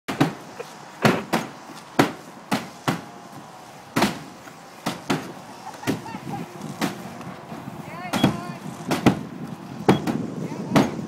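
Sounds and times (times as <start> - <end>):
axe chopping into plywood: 1.0 - 3.0, 4.0 - 5.3.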